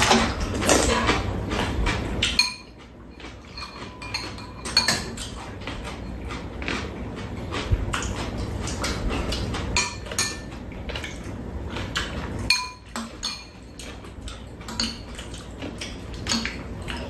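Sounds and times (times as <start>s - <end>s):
utensils clinking on ceramic bowls: 2.2s - 6.4s, 9.8s - 10.6s, 12.5s - 14.0s.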